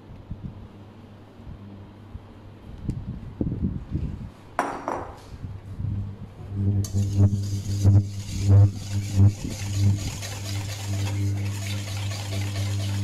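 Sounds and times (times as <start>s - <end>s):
steady low hum: 5.4s - 13.0s
whisk beating in metal bowl: 6.8s - 13.0s.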